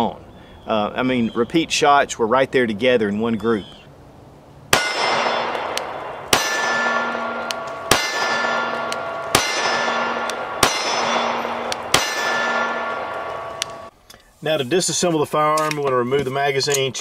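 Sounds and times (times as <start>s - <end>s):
pistol shots: 4.7s - 13.9s
steel plate ringing: 4.7s - 13.9s.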